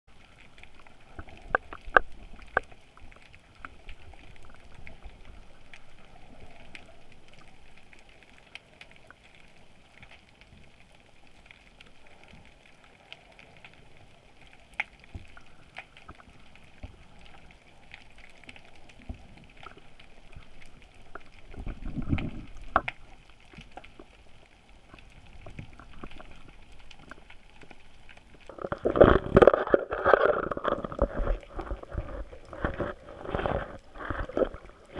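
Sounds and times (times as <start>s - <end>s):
underwater crackle and clicks: 0.1s - 34.9s
low rushing water: 15.2s - 34.9s.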